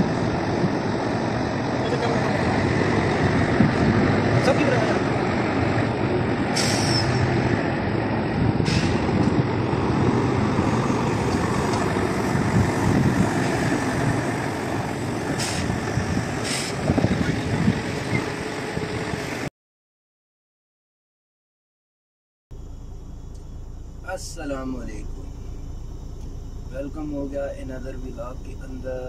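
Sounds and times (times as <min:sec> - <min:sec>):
truck diesel engines: 0:00.0 - 0:19.5, 0:22.5 - 0:29.0
air hissing: 0:06.5 - 0:07.2, 0:08.6 - 0:09.2, 0:15.3 - 0:15.8, 0:16.4 - 0:16.9.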